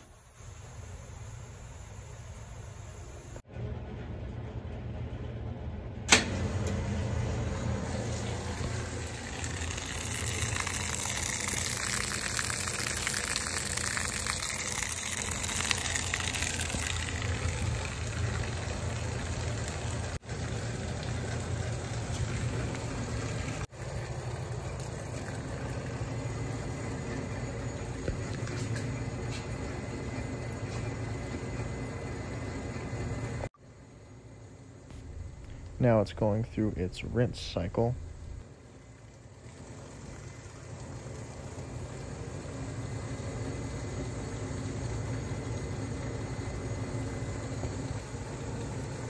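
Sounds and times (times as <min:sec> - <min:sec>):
washing machine motor hum: 0:00.0 - 0:49.0
water rushing into tub: 0:07.6 - 0:26.7.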